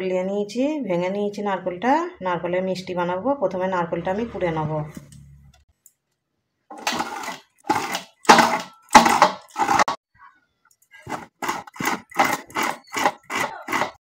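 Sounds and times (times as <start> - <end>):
coconut scraping on serrated blade: 6.7 - 10.0, 11.0 - 14.0.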